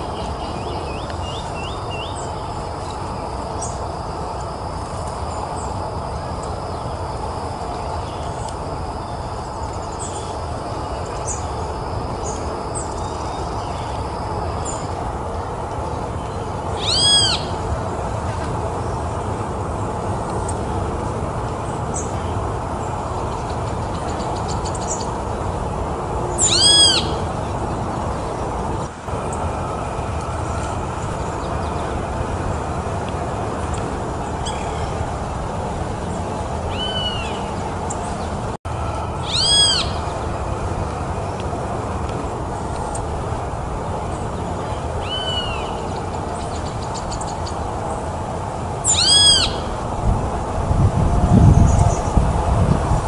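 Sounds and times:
steady low rumble: 0:00.0 - 0:53.0
mockingbird calls: 0:16.8 - 0:17.6, 0:26.4 - 0:27.2, 0:39.2 - 0:40.1, 0:48.8 - 0:49.7
mockingbird call: 0:39.2 - 0:40.0.

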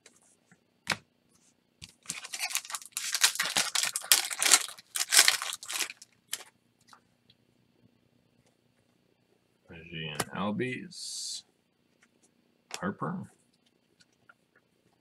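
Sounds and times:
foil wrapper tearing and crinkling: 0:01.9 - 0:06.5.

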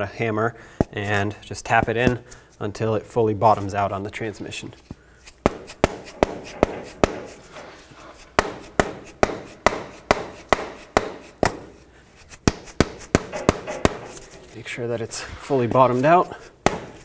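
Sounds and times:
rubber mallet knocking metal: 0:05.4 - 0:07.5, 0:08.3 - 0:11.7, 0:12.4 - 0:14.4, 0:16.6 - 0:17.0.

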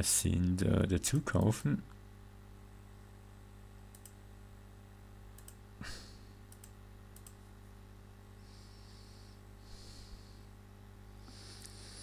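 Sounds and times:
low electrical hum: 0:00.0 - 0:12.0
computer mouse clicking: 0:03.9 - 0:04.2, 0:05.4 - 0:05.6, 0:06.5 - 0:07.4.

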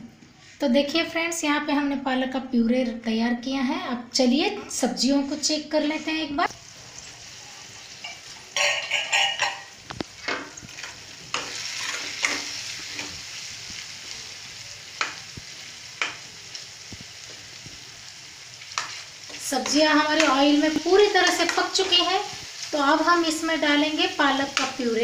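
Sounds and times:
vegetables sizzling in oil: 0:04.4 - 0:25.0
metal spatula scraping pan: 0:08.0 - 0:13.2.

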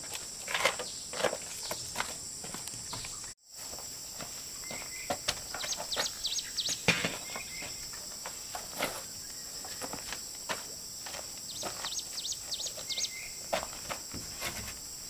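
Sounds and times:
insects droning: 0:00.0 - 0:15.0
birds chirping: 0:00.8 - 0:03.4, 0:04.5 - 0:10.2, 0:11.4 - 0:13.8.

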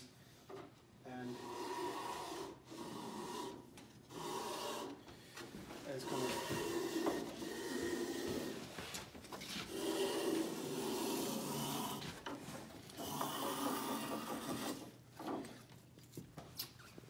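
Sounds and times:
plane rasping on wood: 0:01.2 - 0:05.0, 0:05.9 - 0:08.7, 0:09.5 - 0:12.2, 0:13.0 - 0:15.0.

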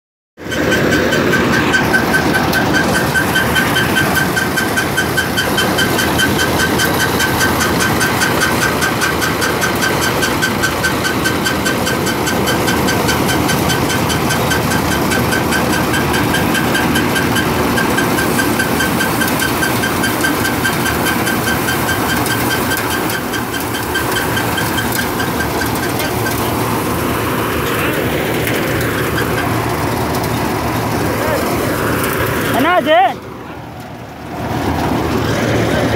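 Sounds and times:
diesel engine running: 0:00.4 - 0:35.9
high-pitched machinery clatter: 0:00.4 - 0:35.9.

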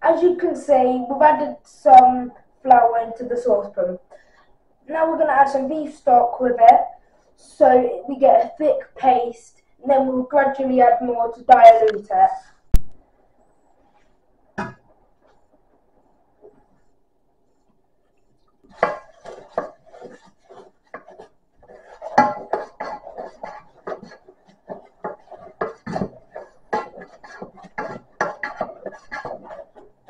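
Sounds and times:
wooden spoon scraping metal saucepan: 0:18.2 - 0:30.0.

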